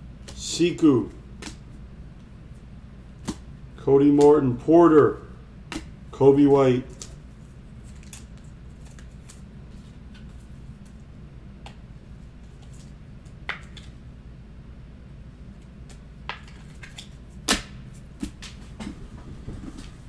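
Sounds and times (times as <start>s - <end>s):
steady low hum: 0.0s - 20.0s
trading cards clicking and rustling: 7.8s - 11.0s.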